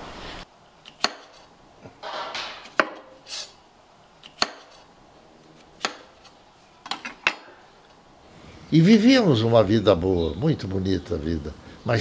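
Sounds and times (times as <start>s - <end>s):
knife cutting pepper: 0.8s - 1.5s, 4.2s - 4.9s.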